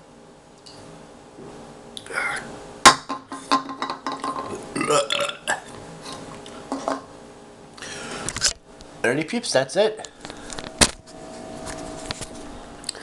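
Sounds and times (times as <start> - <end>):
man belching: 4.1 - 5.8.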